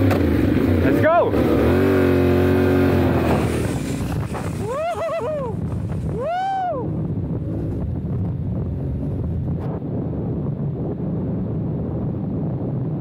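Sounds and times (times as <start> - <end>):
motorcycle engine revving: 0.0 - 6.2
wind noise on microphone: 0.0 - 13.0.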